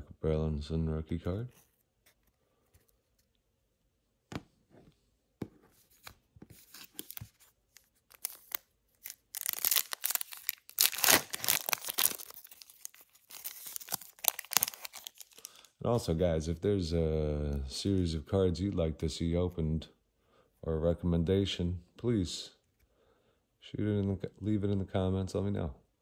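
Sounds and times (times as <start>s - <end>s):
wrapper tearing and crinkling: 6.6s - 15.6s.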